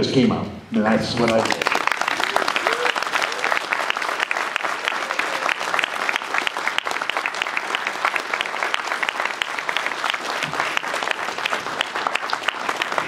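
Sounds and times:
crowd clapping: 0.8 - 13.0.

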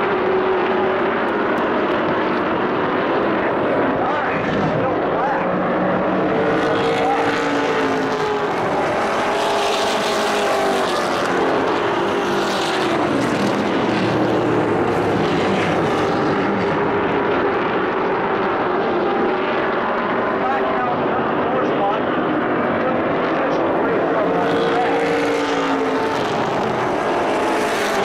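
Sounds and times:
race truck engines passing: 0.0 - 28.0.

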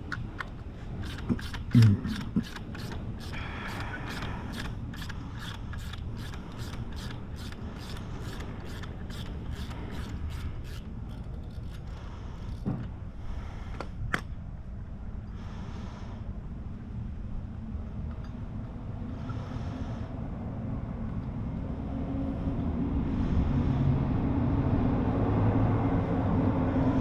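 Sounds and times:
socket ratchet clicking: 0.0 - 12.7.

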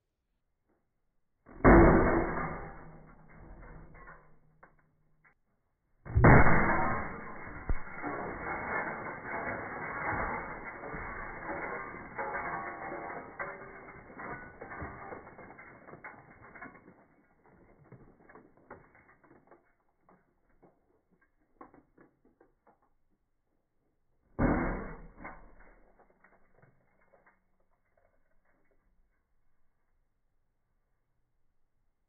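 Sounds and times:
glass tube shattering crash: 1.6 - 4.5, 6.1 - 17.0
glass crunching and clinking: 6.2 - 20.8
settling glass crackle: 6.2 - 21.9.

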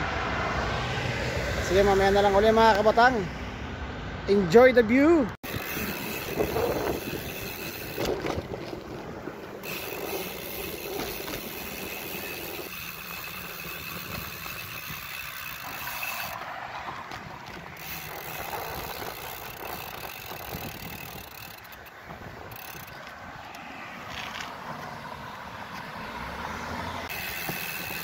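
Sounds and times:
wind buffeting microphone: 5.4 - 23.4
bicycle tyre road noise: 5.4 - 28.0.

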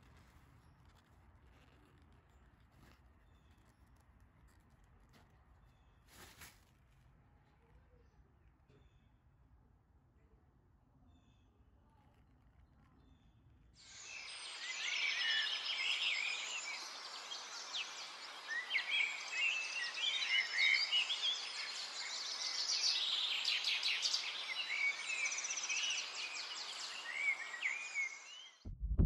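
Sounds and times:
outdoor ambience hiss: 13.8 - 28.5
birds chirping and trilling: 13.8 - 28.6.

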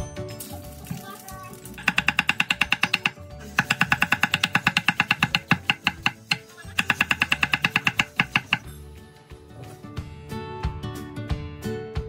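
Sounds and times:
cleaver chopping on wooden board: 1.8 - 8.7.

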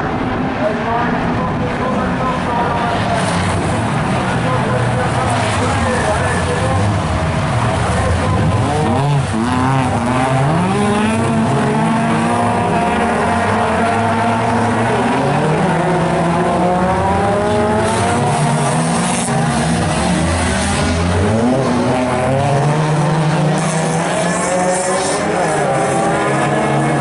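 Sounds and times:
race car engines revving: 0.0 - 27.0.

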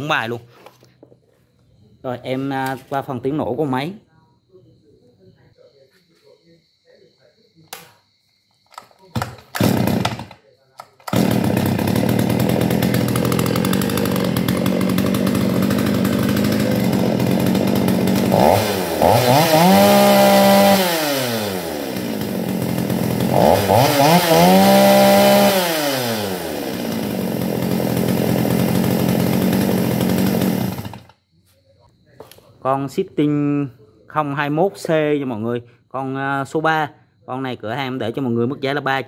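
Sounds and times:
chainsaw engine idling and revving: 9.2 - 31.2.

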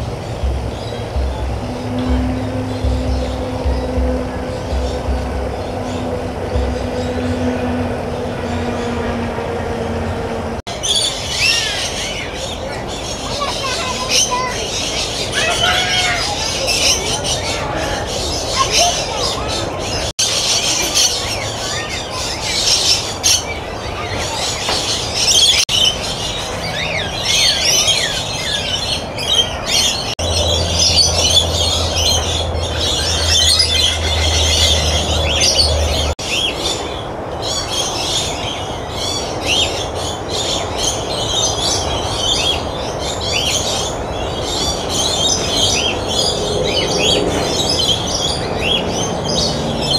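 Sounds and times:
low steady hum: 0.0 - 10.6
steady background noise: 0.0 - 49.9
small birds chirping: 10.6 - 49.9.

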